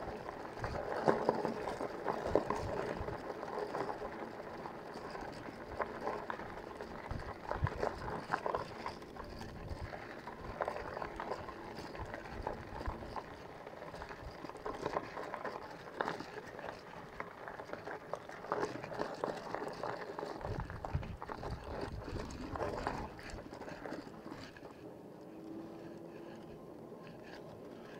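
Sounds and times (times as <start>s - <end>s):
bicycle tyres crunching on gravel: 0.0s - 26.4s
bike rattling: 0.0s - 27.9s.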